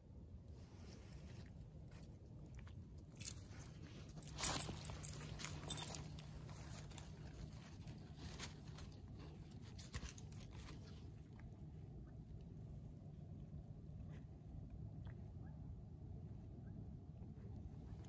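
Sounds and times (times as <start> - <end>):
footsteps crunching on a trail: 3.2 - 11.1.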